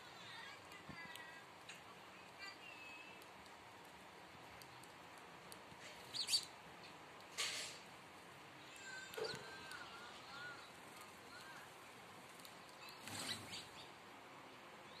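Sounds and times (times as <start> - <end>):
sparrows chirping: 5.8 - 7.1, 8.6 - 12.0, 12.6 - 14.0.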